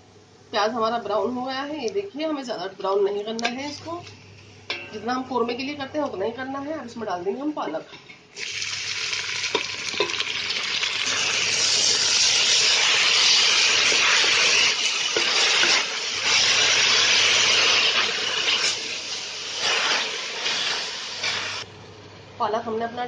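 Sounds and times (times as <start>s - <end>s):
spinach sizzling in hot oil: 8.4s - 21.7s.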